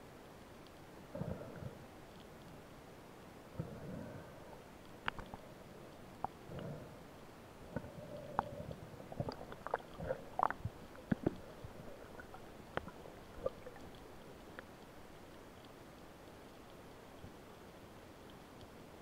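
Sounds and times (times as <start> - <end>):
faint hum: 0.0 - 19.0
underwater clicks and knocks: 9.2 - 14.7.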